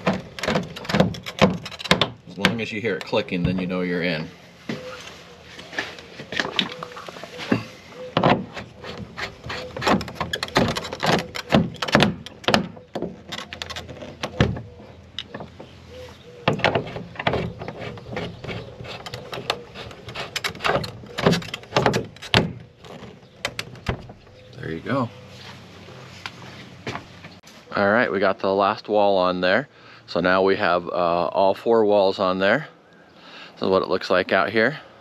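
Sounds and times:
plastic panels clicking and knocking: 0.0s - 3.7s, 7.5s - 15.8s, 16.4s - 24.2s.

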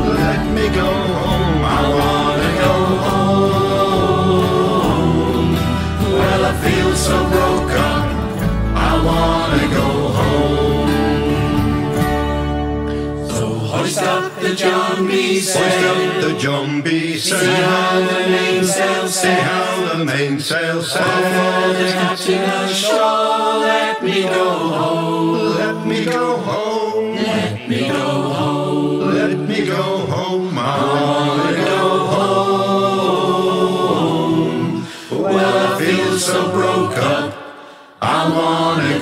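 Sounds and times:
strummed acoustic guitars: 0.0s - 14.3s
group singing folk song: 0.0s - 39.0s.

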